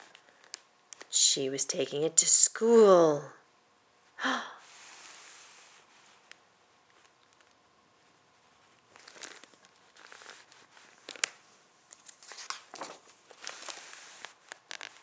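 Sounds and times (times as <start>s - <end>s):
paper pages rustling: 6.9s - 15.0s
page snapping: 11.1s - 13.0s.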